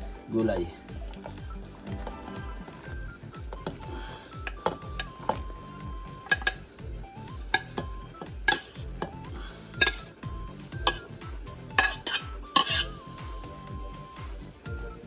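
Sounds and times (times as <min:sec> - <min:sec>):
metal spoon scraping steel pots: 0:06.2 - 0:06.8, 0:07.5 - 0:07.9, 0:08.5 - 0:09.2, 0:09.8 - 0:10.1, 0:10.8 - 0:13.1.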